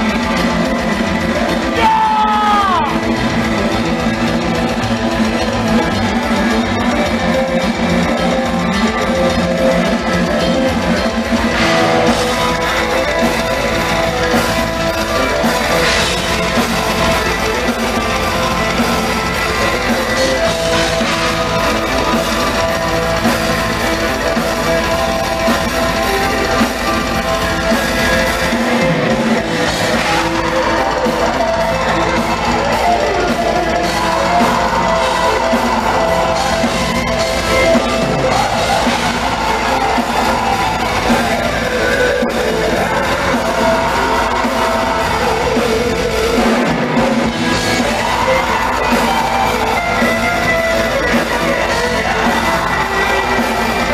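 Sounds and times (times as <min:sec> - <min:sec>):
fast bass drum strokes: 0:00.0 - 0:53.9
heavy metal band playing: 0:00.0 - 0:53.9.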